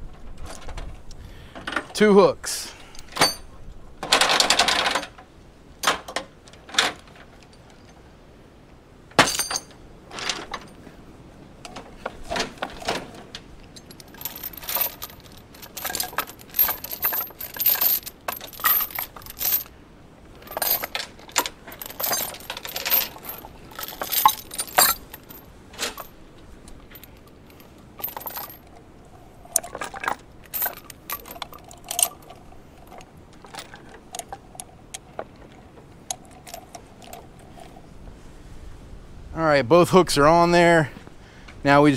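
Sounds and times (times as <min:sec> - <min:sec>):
steel chains clinking and jangling: 0:02.9 - 0:05.2, 0:09.2 - 0:10.8, 0:12.2 - 0:19.7, 0:20.4 - 0:37.9.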